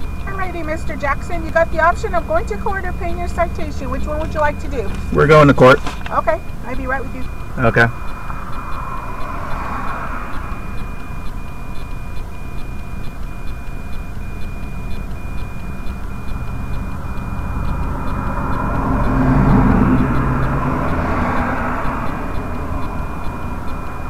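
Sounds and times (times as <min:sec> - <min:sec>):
highway traffic rumble: 0:00.0 - 0:24.0
vehicle passing close by: 0:07.6 - 0:11.7, 0:16.4 - 0:24.0.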